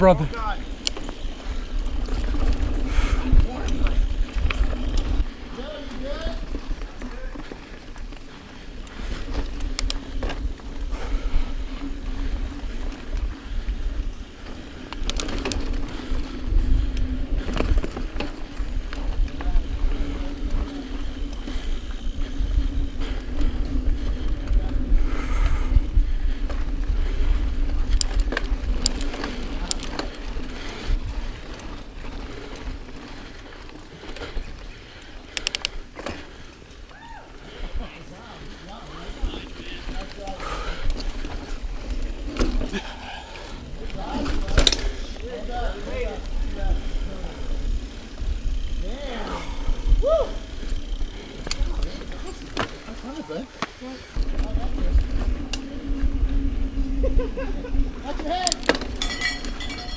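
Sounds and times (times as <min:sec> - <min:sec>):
bike rattling with clicks: 0:00.0 - 0:59.9
tyres rolling on dirt: 0:00.0 - 0:59.9
wind rumbling on microphone: 0:01.1 - 0:05.5, 0:08.9 - 0:33.0, 0:40.4 - 0:52.3, 0:54.2 - 0:58.2.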